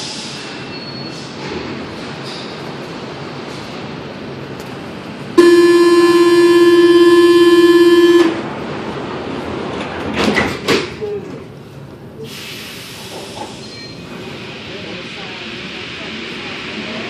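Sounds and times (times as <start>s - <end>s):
train door warning buzzer: 5.4s - 8.5s.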